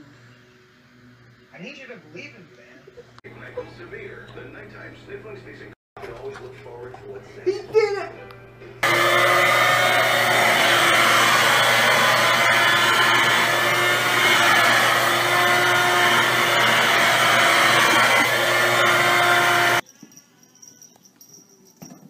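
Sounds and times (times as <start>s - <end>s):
vacuum cleaner motor whine: 8.8s - 19.8s.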